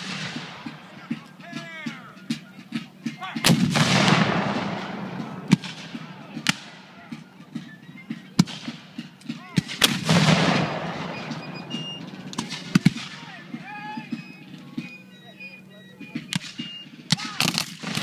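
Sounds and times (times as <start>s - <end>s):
cannon booms with rumble: 3.4s - 6.7s, 9.6s - 13.2s
gunshots cracking: 3.4s - 6.8s, 9.6s - 13.3s, 16.3s - 18.0s.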